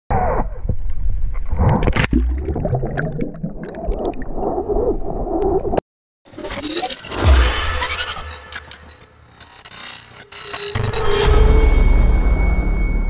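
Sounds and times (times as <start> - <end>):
underwater gurgling and bubbling: 1.4 - 5.8.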